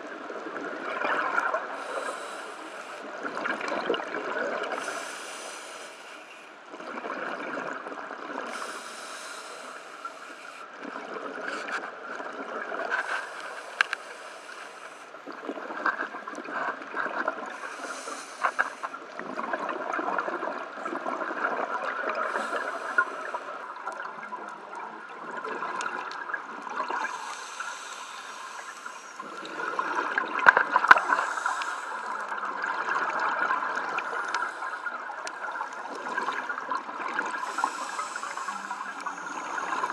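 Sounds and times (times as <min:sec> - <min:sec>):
exhaled air bubbling underwater: 0:00.0 - 0:39.9
regulator hiss on inhale: 0:01.8 - 0:03.2, 0:04.7 - 0:06.6, 0:08.5 - 0:10.8, 0:12.9 - 0:15.2, 0:17.5 - 0:19.1, 0:22.2 - 0:23.7, 0:27.0 - 0:29.7, 0:30.9 - 0:32.4, 0:33.8 - 0:35.0, 0:37.3 - 0:39.9.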